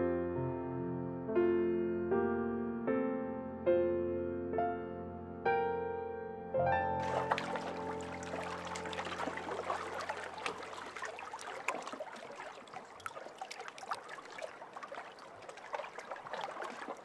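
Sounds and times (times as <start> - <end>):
water trickling and lapping: 7.0 - 17.0.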